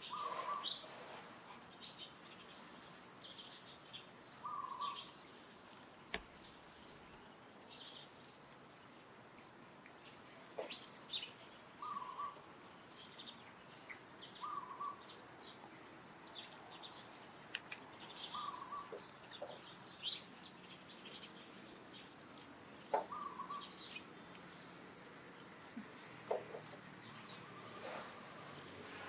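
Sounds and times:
mid-pitched bird call: 0.0s - 0.9s, 4.4s - 5.0s, 11.8s - 12.4s, 14.4s - 15.0s, 18.3s - 19.5s, 22.9s - 23.7s
high bird chirps: 4.4s - 5.2s, 10.6s - 12.4s, 13.1s - 15.2s, 18.0s - 21.4s, 22.8s - 24.8s.

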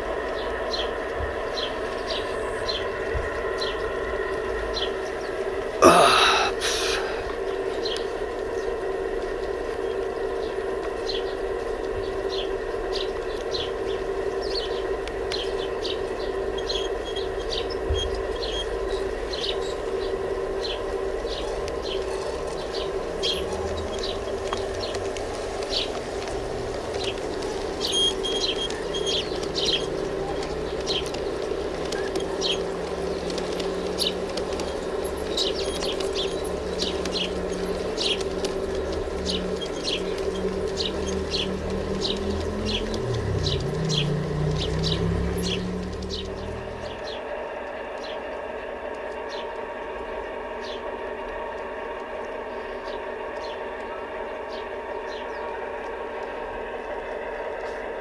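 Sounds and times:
steady pitched hum: 0.0s - 43.7s
low drone rising in pitch: 0.0s - 58.0s
small birds chirping: 0.0s - 58.0s.

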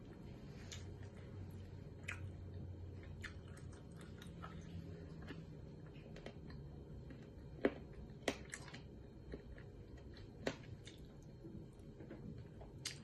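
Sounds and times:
chewing and lip smacking: 0.6s - 11.4s.

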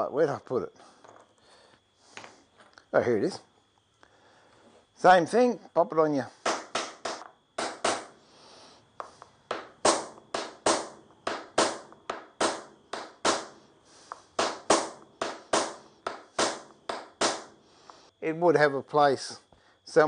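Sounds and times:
hammer tapping punch into wood: 9.0s - 13.5s, 14.4s - 17.5s.

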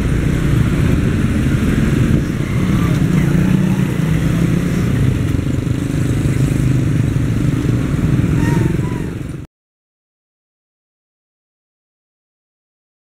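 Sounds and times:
motorcycle engines: 0.0s - 9.5s
road traffic: 0.0s - 9.5s.

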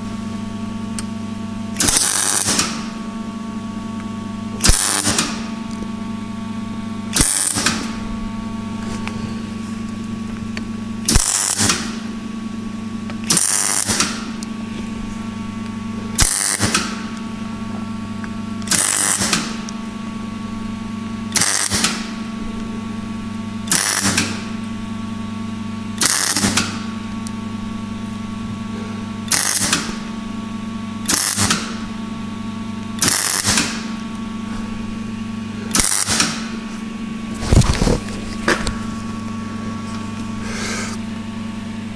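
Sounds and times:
steady electrical hum: 0.0s - 41.9s
welding arc crackling sizzle: 0.9s - 3.0s, 4.0s - 5.9s, 6.8s - 28.3s, 29.2s - 30.4s, 31.0s - 40.6s.

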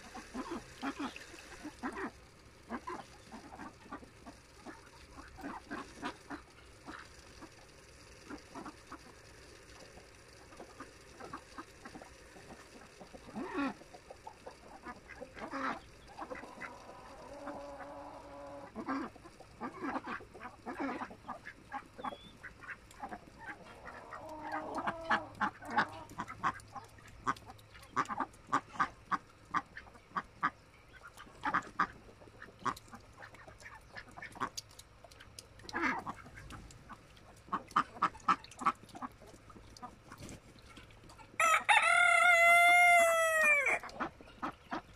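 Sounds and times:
ducks quacking: 0.0s - 7.6s, 10.4s - 44.9s.

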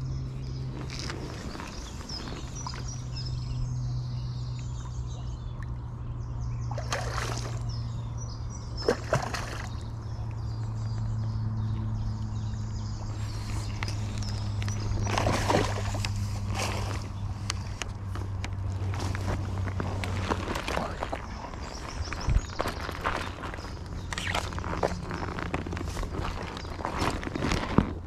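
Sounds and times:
birdsong: 0.0s - 28.0s
water splashing: 6.7s - 7.8s, 8.8s - 9.9s, 13.9s - 17.3s.

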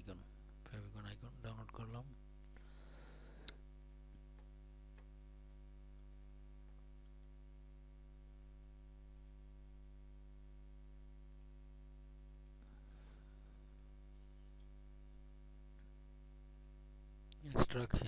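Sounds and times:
electrical hum: 0.0s - 18.0s
computer mouse clicks: 11.3s - 11.6s, 12.3s - 12.6s, 13.7s - 14.8s.

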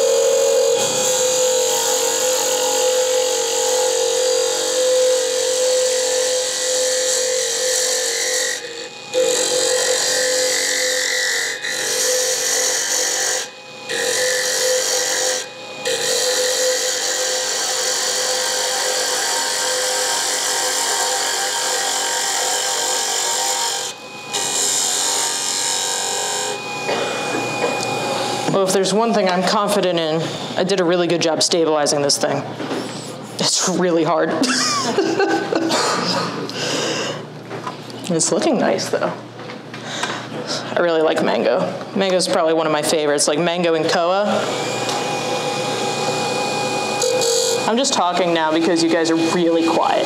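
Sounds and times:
rasping wood lathe cutting: 0.0s - 28.8s, 43.8s - 50.0s
lathe motor tone: 0.0s - 30.5s, 43.6s - 50.0s.

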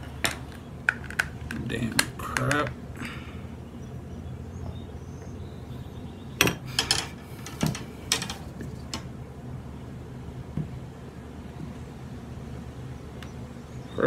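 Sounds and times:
low steady hum: 0.0s - 14.0s
metal tools clinking: 6.4s - 9.1s.

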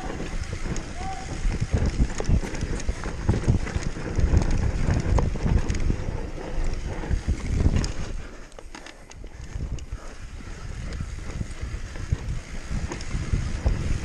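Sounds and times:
mountain bike clattering on rough ground: 0.0s - 14.0s
wind buffeting microphone: 0.0s - 14.0s.

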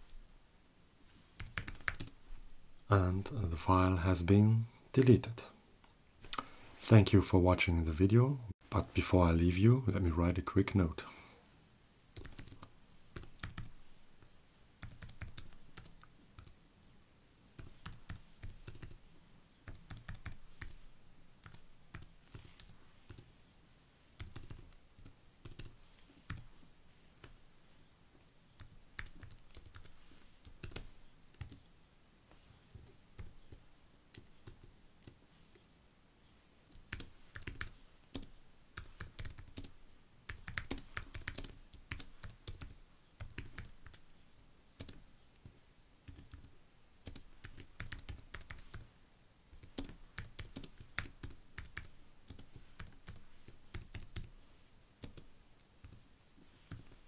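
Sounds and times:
computer keyboard typing: 1.4s - 2.2s, 12.2s - 13.8s, 14.8s - 16.5s, 17.6s - 19.0s, 19.7s - 20.8s, 21.4s - 23.2s, 24.2s - 26.5s, 28.6s - 31.6s, 32.7s - 35.2s, 36.7s - 39.7s, 40.3s - 44.0s, 44.8s - 45.5s, 46.1s - 48.9s, 49.6s - 54.3s, 55.0s - 56.0s, 56.7s - 56.9s.

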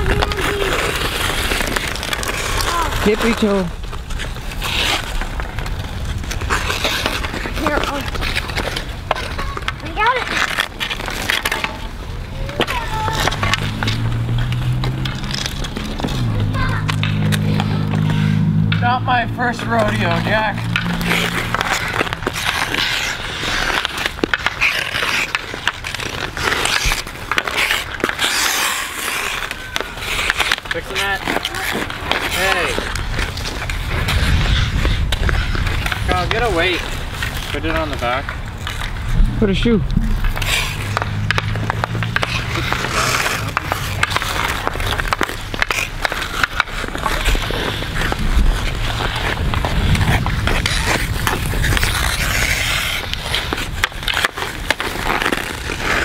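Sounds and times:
hockey sticks striking puck: 0.0s - 56.0s
ice skates scraping ice: 0.0s - 56.0s
low rumble: 32.0s - 37.6s, 38.2s - 54.2s.

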